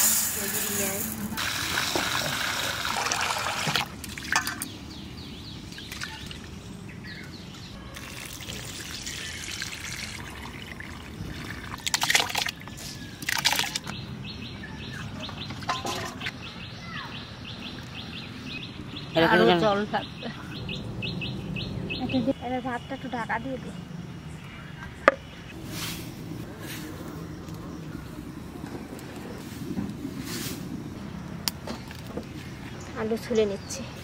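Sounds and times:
rice pouring into steel bowl: 0.0 - 2.2
birds chirping faintly: 4.2 - 34.0.

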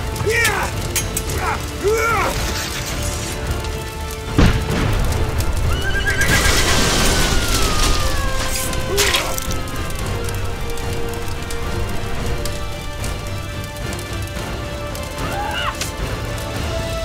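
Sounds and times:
battle din: 0.0 - 3.6, 4.3 - 17.0
dramatic music: 0.0 - 17.0
horse neighing: 5.8 - 6.8.

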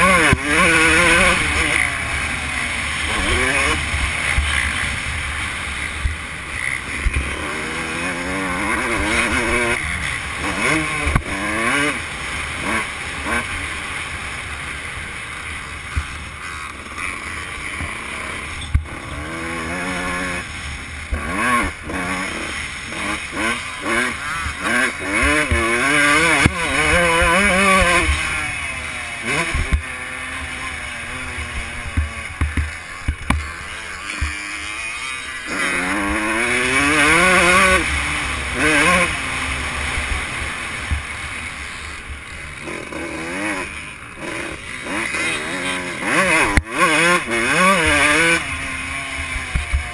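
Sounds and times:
dirt bike engine revving: 0.0 - 49.9
sharp knocks over bumps: 31.5 - 33.5, 34.1 - 34.4.

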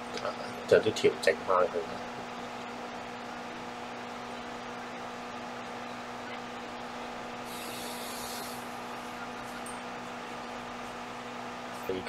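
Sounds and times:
background hum and hiss: 0.0 - 12.0
bright high hiss: 7.4 - 8.7.

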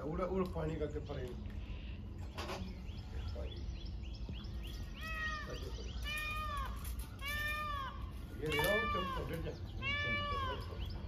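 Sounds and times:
animal making cat-like calls: 5.0 - 10.9.

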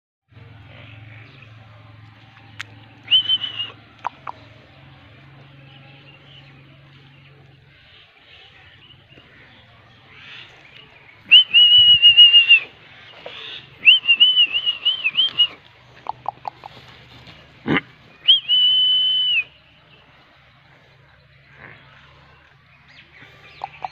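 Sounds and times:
shrill whistled notes: 3.1 - 3.8, 11.3 - 12.7, 13.8 - 15.6, 18.2 - 19.6.

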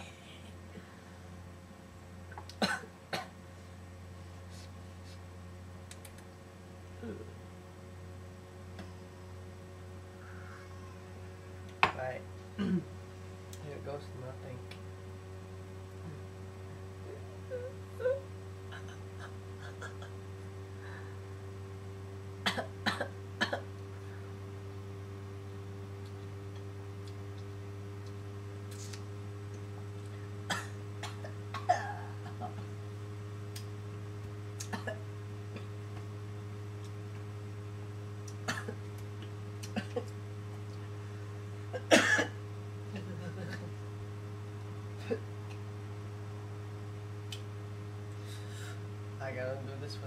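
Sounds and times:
steady low hum: 0.0 - 50.0
man coughing: 2.6 - 3.3, 12.6 - 12.9, 30.5 - 32.5, 34.7 - 35.0, 38.5 - 38.8, 41.7 - 42.4.

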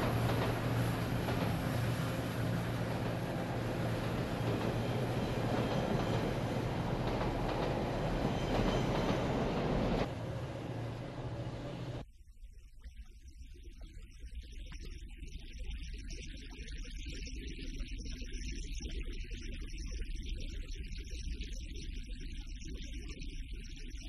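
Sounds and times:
train wheels rumbling on track: 0.0 - 12.0
low hum: 0.0 - 12.2.

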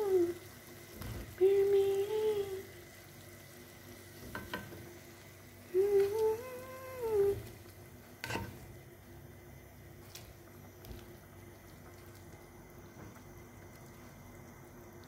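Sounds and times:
food sizzling in a pan: 0.0 - 15.0
wooden spoon knocking a pan: 4.3 - 4.8
person humming a tune: 5.7 - 7.5.

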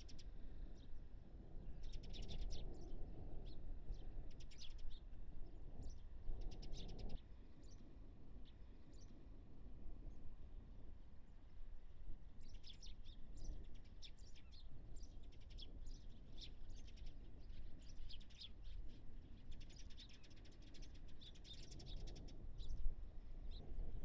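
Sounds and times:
sparrows chirping: 12.4 - 22.8.

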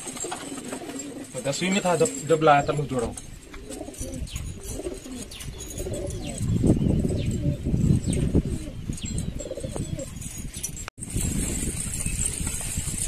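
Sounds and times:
pigeons cooing: 0.0 - 10.2.

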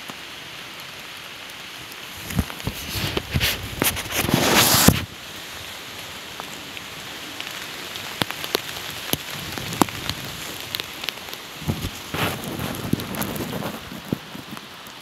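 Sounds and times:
close raindrops striking: 0.0 - 15.0
steady rain hissing: 0.0 - 15.0
brief rustle: 2.2 - 5.1.

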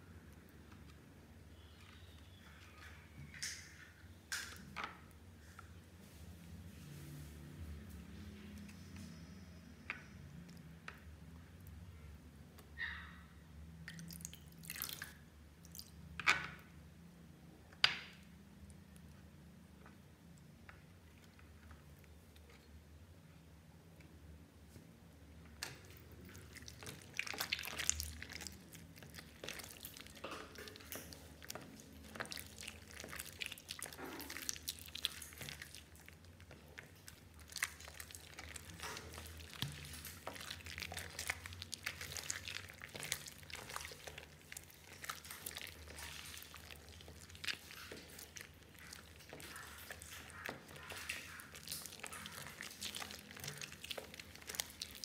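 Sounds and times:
slime squelching by hand: 13.7 - 16.7, 24.6 - 55.0.

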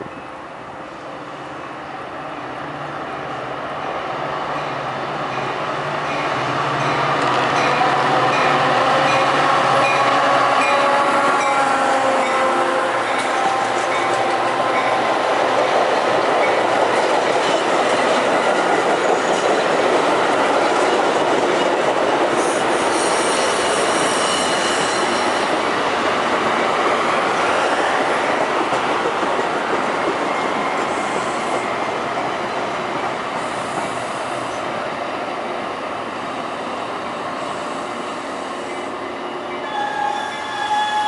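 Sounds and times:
train wheels rumbling on rails: 4.2 - 41.0
high wheel squeal: 22.4 - 25.5.

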